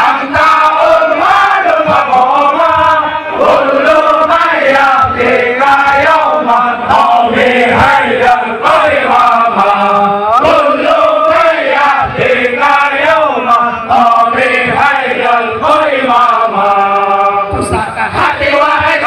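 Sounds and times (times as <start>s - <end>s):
crowd of men chanting in unison: 0.0s - 19.0s.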